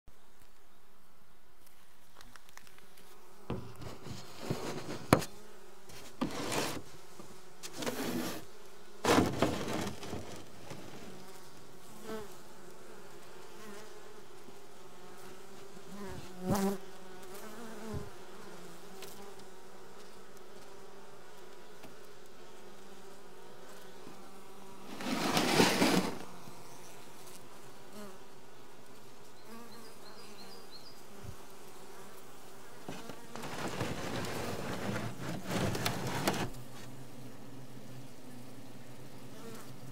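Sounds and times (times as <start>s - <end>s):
bees humming: 3.0s - 39.9s
knocks and rustles: 3.5s - 8.4s, 9.0s - 11.3s, 24.9s - 26.3s, 32.8s - 36.9s.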